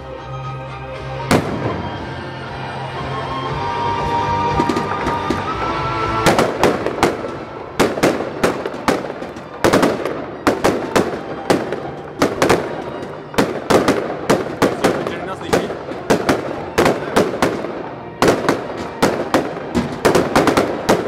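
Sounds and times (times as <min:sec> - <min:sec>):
firework shells bursting: 0:06.2 - 0:21.0.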